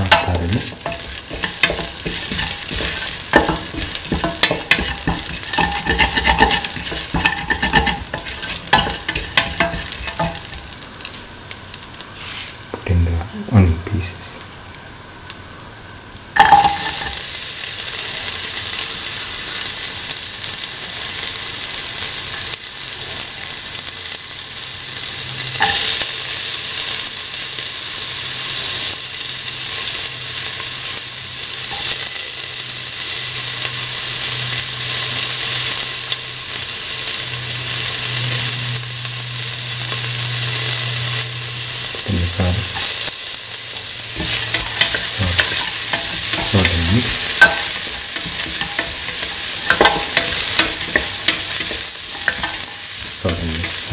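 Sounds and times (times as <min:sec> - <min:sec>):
onions sizzling in oil: 0:00.0 - 0:53.9
stirring scrapes against pan: 0:00.1 - 0:10.6.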